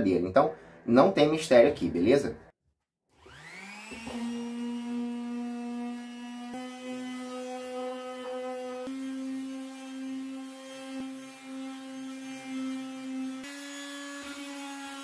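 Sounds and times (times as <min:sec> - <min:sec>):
electric sander motor hum: 0:03.2 - 0:09.0.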